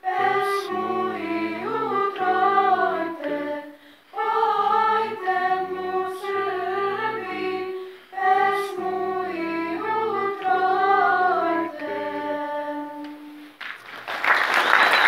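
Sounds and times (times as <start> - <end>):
girls singing together: 0.0 - 13.4
applause: 13.6 - 15.0.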